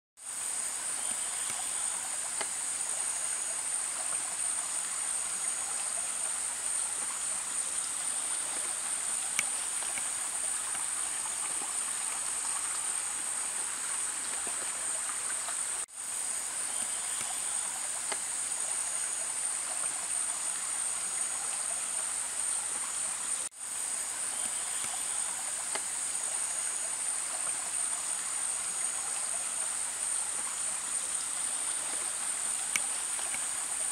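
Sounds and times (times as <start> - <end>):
insects droning: 0.2 - 33.9
stream running over stones: 0.2 - 33.9.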